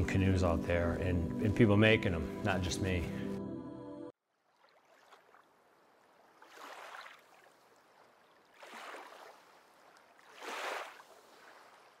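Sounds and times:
paddle swishing through water: 4.2 - 12.0.

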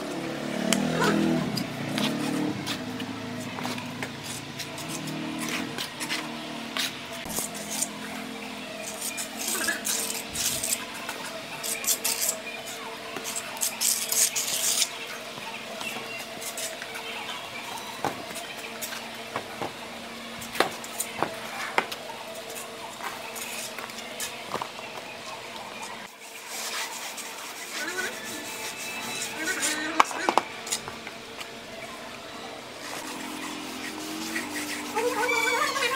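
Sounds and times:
trowel scraping wet mortar: 8.8 - 11.0, 11.6 - 14.9, 26.4 - 30.8.

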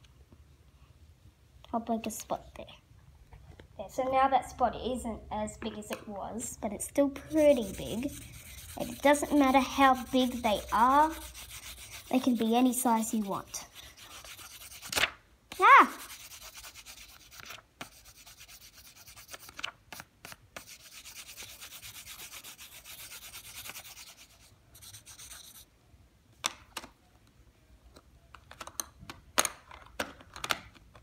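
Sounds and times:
pencil scribbling on paper: 7.2 - 14.9, 15.9 - 19.5, 20.6 - 25.7.

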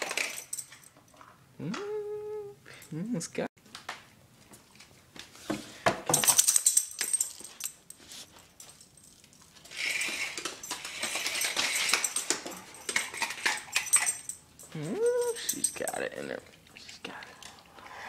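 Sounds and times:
toy car clicking and jingling: 0.0 - 0.9, 9.1 - 16.1
toy scraping on floor: 9.7 - 11.9.

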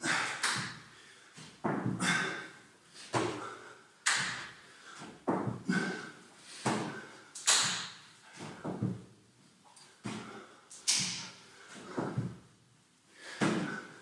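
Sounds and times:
hand clap: 0.4 - 0.8, 4.0 - 4.5, 7.4 - 8.0
hands and feet thudding on floor: 1.4 - 2.2, 4.1 - 5.8, 6.6 - 9.1, 10.0 - 12.4, 13.3 - 13.8.

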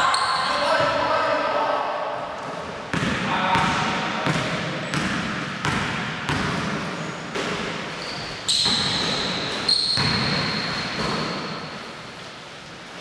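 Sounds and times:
basketball bouncing on wooden floor: 2.4 - 11.6.

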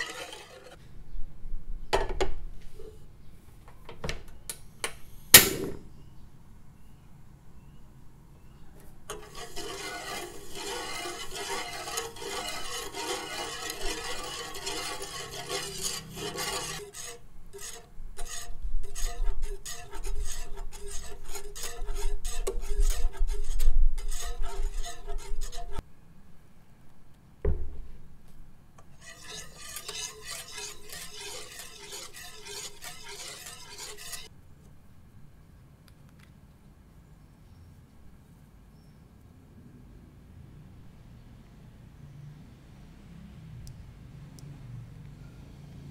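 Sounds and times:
whisk scraping a pot: 0.0 - 0.8, 9.1 - 25.8, 29.0 - 34.3
thud: 5.4 - 5.9, 27.4 - 27.9.

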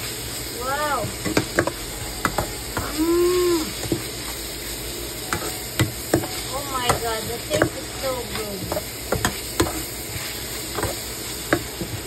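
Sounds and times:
meat sizzling in a frying pan: 0.0 - 12.0
spatula scraping and knocking pan: 5.3 - 12.0.

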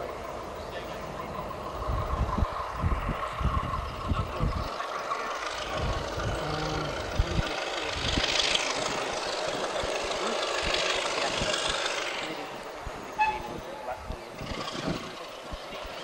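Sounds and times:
diesel locomotive engine working: 0.0 - 16.0.

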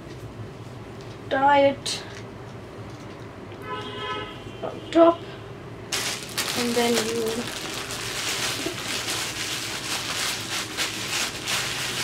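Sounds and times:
foil shower cap crinkling: 5.9 - 12.0.

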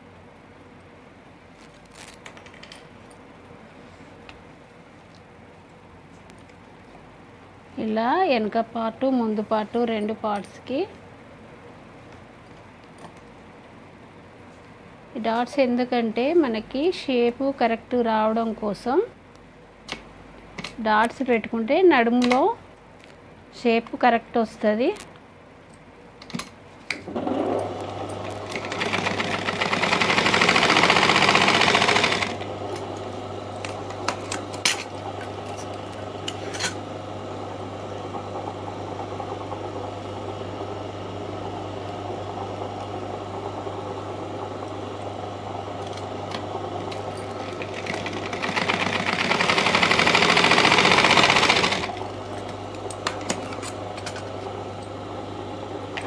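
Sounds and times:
sewing machine stitching: 27.1 - 35.9, 45.8 - 54.3.

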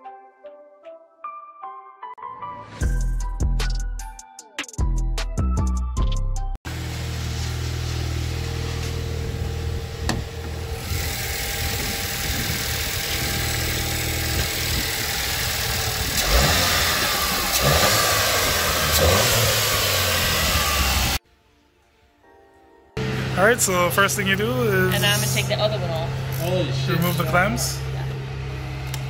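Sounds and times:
car engine idling: 6.7 - 21.2, 23.0 - 29.0.

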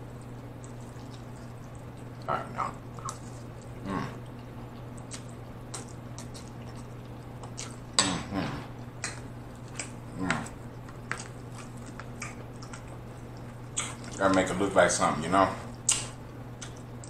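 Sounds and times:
chewing and wet mouth smacks: 0.2 - 14.5, 15.7 - 17.0.

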